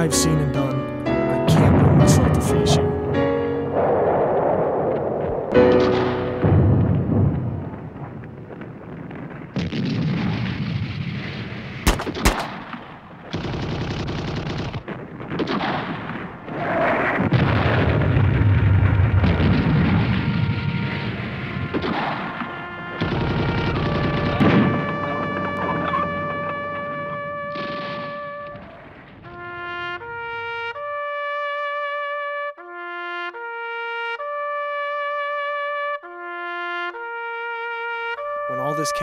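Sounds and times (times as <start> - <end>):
low rumbling booms: 1.6 - 13.4, 14.7 - 29.3
gunshot cracks: 5.5 - 7.4, 9.6 - 18.2, 19.2 - 29.4.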